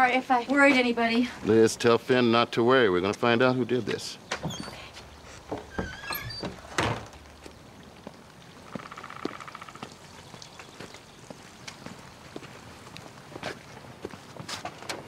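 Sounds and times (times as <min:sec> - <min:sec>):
light footsteps: 0:03.0 - 0:15.0
wooden door shutting with a thud: 0:04.3 - 0:04.8, 0:05.5 - 0:07.2.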